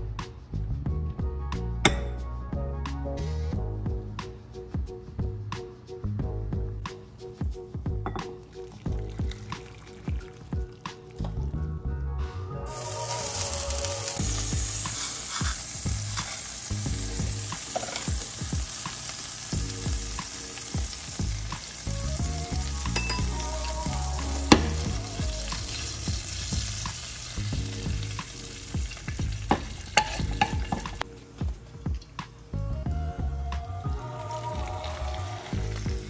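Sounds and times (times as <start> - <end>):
hot oil sizzling: 6.8 - 11.5, 12.7 - 32.6, 33.8 - 36.0.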